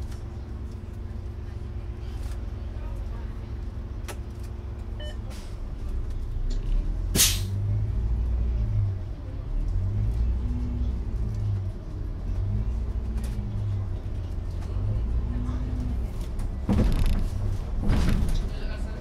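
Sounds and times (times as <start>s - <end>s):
bus engine running: 0.0s - 19.0s
hiss of released air: 7.2s - 7.5s.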